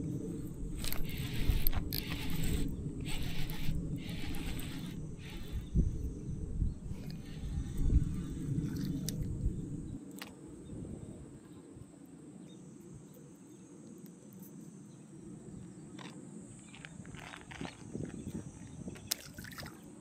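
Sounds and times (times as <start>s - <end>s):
low microphone rumble: 0.0s - 10.0s
insects chirping: 0.0s - 20.0s.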